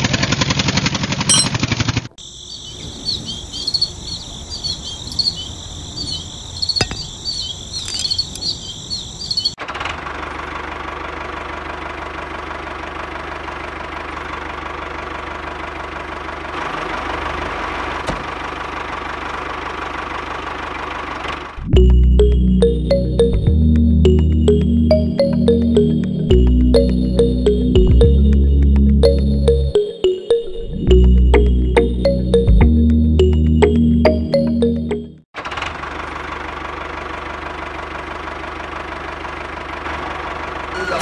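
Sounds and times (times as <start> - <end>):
insects chirping: 2.2 - 9.6.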